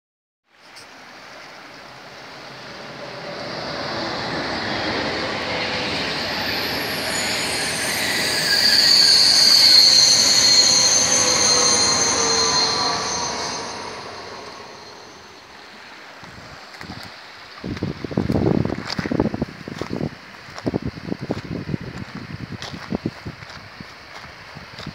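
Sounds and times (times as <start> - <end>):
train rumbling over bridge: 0.9 - 24.9
high-pitched ringing tones: 4.4 - 15.8.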